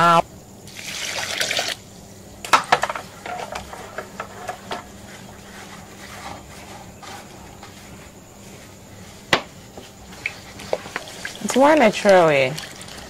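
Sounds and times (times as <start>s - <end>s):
wet squelches of squeezed cloth: 10.1s - 13.0s.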